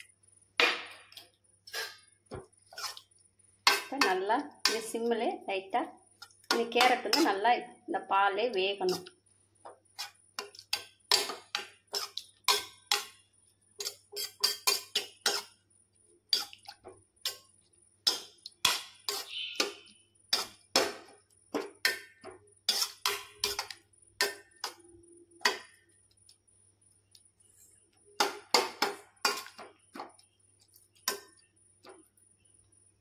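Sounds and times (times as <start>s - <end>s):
wooden spoon stirring in metal pan: 1.1s - 5.0s, 6.2s - 7.4s, 8.7s - 15.6s, 16.3s - 24.8s, 27.0s - 32.5s.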